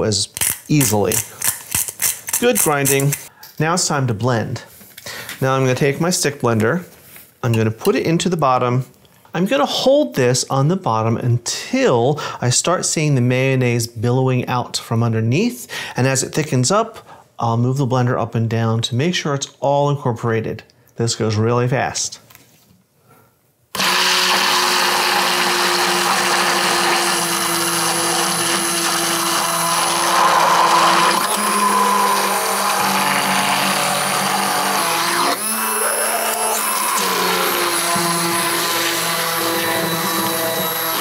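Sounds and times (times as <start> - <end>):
immersion blender whirring: 23.8 - 41.0.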